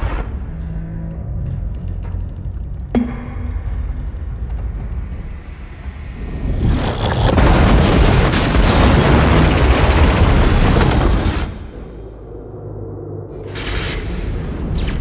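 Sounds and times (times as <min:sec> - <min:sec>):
low rumble: 0:00.0 - 0:15.0
train crashing with debris: 0:07.3 - 0:11.6.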